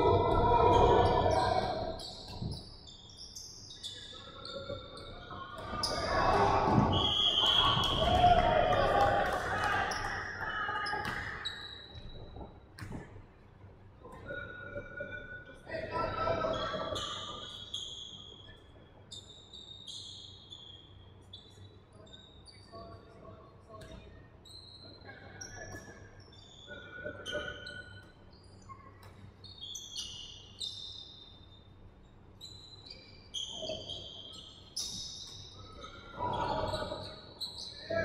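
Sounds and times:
sneakers squeaking on court: 10.8 - 13.1, 32.4 - 37.8
basketball bouncing: 11.0 - 11.3.

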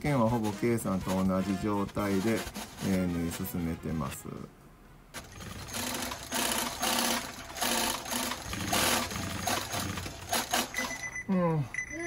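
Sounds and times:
sewing machines stitching: 0.1 - 3.4, 5.2 - 11.1.

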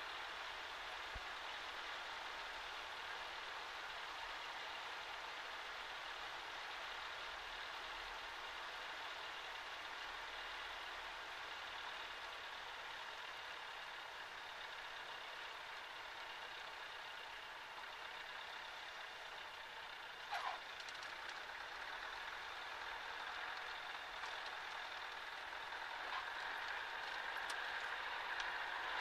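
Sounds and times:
brief squeal: 20.3 - 20.6.

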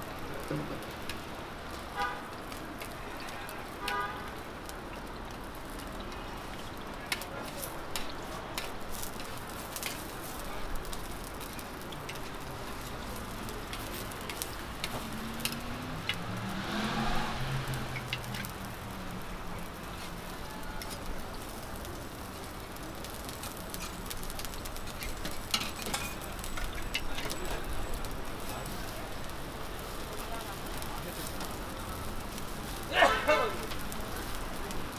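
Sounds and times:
pancakes sizzling in oil: 0.0 - 34.9
metal spatula clicking and scraping: 7.1 - 10.1, 13.6 - 16.2, 17.9 - 18.6, 23.4 - 27.4.

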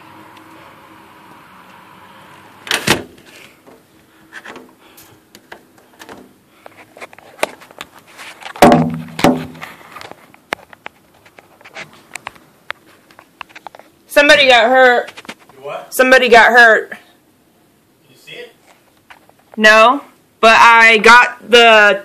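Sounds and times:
faint steady hum: 0.0 - 22.0
knocks and clatter: 8.5 - 9.7
loud bang: 8.6 - 9.6.

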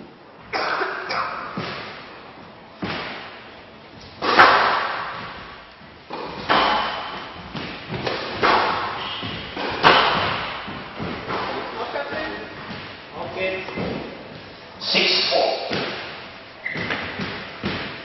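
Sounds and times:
squash ball smacks echoing: 0.5 - 2.1, 2.8 - 13.0, 15.6 - 18.0.

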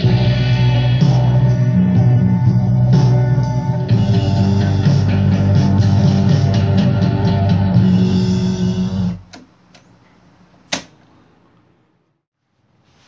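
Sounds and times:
rock music from cassette deck: 0.0 - 9.5
cassette deck button clicks: 10.7 - 11.0.

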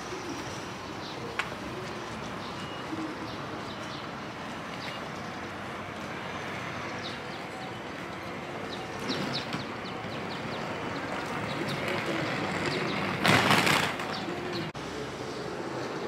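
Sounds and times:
pigeon cooing: 0.0 - 3.8
city background noise: 0.0 - 16.0
small birds chirping: 6.8 - 13.2.

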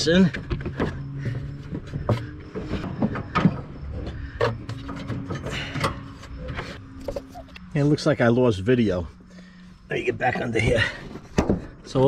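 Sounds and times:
metal knocks and scrapes: 0.0 - 7.6
low steady hum: 0.0 - 12.0.

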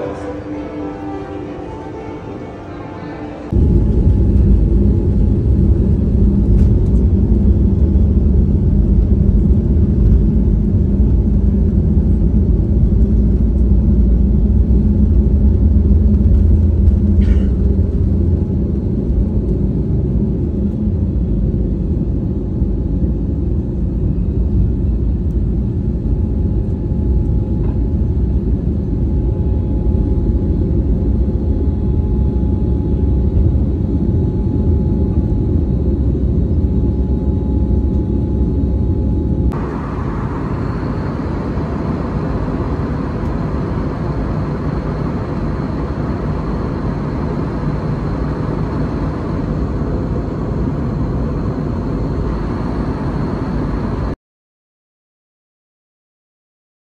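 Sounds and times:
deep cabin rumble: 3.5 - 54.2
jet engines at takeoff power: 3.5 - 54.2
faint steady engine tones: 36.9 - 54.1.

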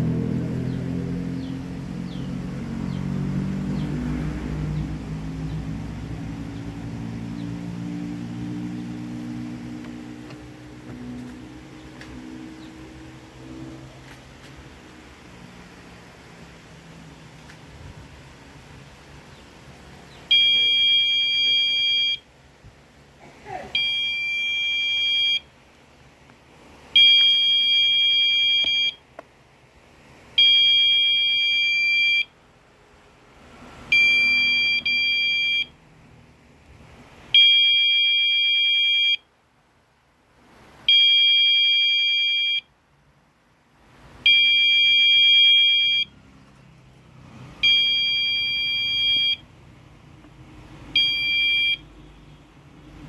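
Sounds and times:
high-pitched alarm beeps: 20.3 - 22.2, 23.8 - 25.4, 27.0 - 29.0, 30.4 - 32.3, 33.9 - 35.7, 37.4 - 39.2, 40.9 - 42.7, 44.3 - 46.1, 47.6 - 49.4, 51.0 - 51.9.

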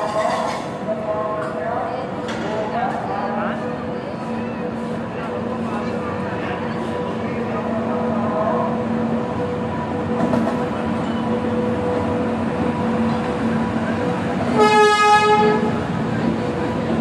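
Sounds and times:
passenger train rumbling past: 0.0 - 17.0
train horn: 14.5 - 15.8.

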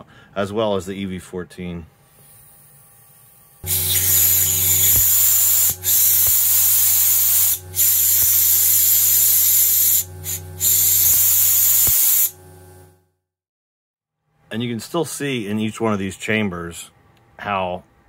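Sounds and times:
fuel injectors spraying hiss: 3.6 - 12.8
low hum: 3.6 - 12.9.

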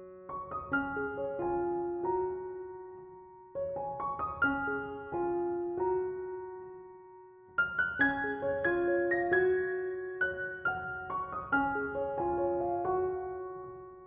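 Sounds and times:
slow piano melody: 0.0 - 14.0.

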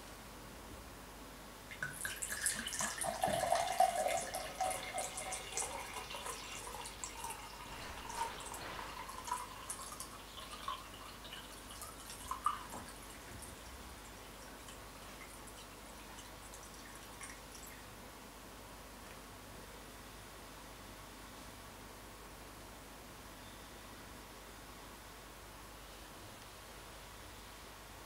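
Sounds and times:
water pouring into a glass: 1.7 - 17.8.

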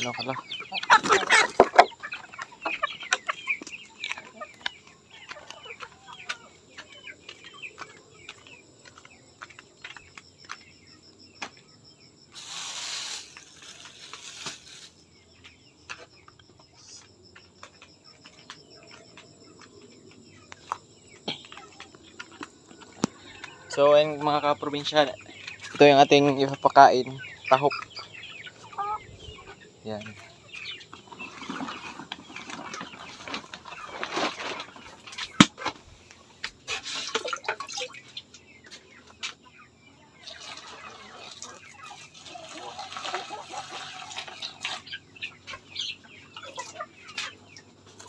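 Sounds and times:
chickens clucking: 0.0 - 11.6, 12.2 - 48.0
rustling noise: 12.3 - 15.1, 30.6 - 37.2.

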